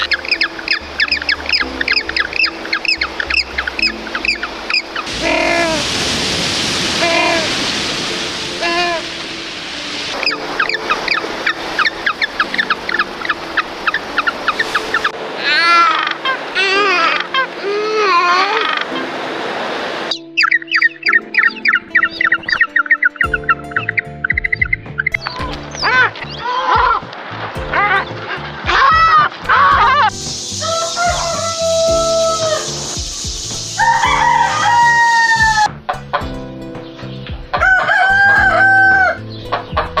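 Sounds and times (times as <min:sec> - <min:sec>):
penguins chirping: 0:00.0 - 0:05.8, 0:20.1 - 0:27.0
background music: 0:00.0 - 0:40.0
roosters crowing: 0:28.8 - 0:33.0, 0:33.7 - 0:35.8, 0:37.5 - 0:40.0.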